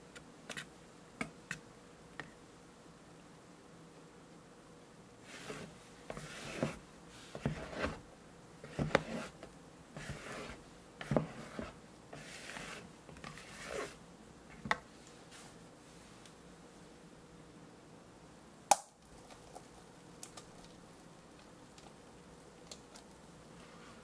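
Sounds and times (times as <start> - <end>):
batter swishing in glass bowl: 10.0 - 14.0.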